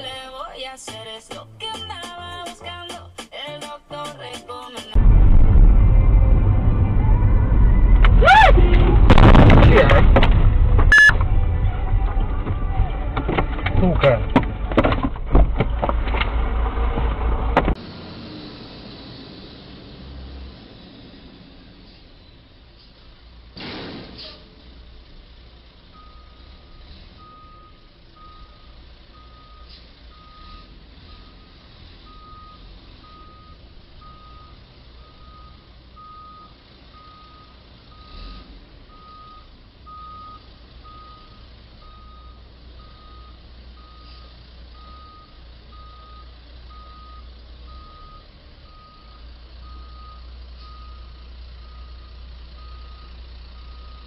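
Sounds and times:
low rumble: 5.0s - 17.6s
truck reversing alarm beeping: 10.8s - 13.1s, 25.8s - 54.0s.

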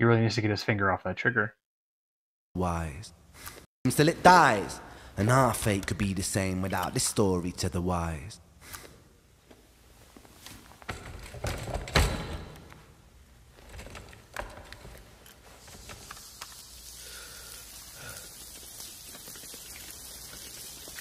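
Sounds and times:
rain hissing: 15.6s - 21.0s.

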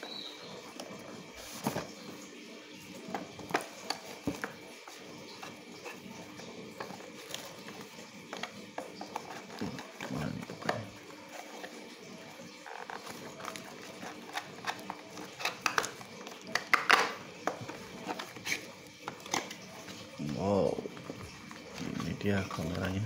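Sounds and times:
cardboard tapping and rustling: 0.8s - 2.2s, 3.0s - 11.8s, 12.7s - 20.0s.

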